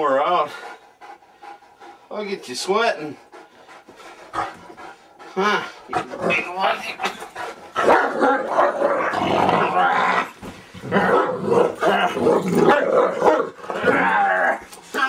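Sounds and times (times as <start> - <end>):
dog play-growling: 3.2 - 15.0.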